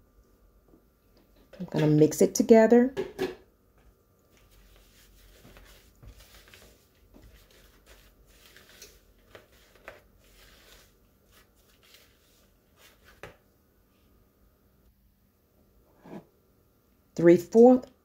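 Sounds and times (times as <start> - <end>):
spatula scraping plastic bowl: 4.5 - 12.4.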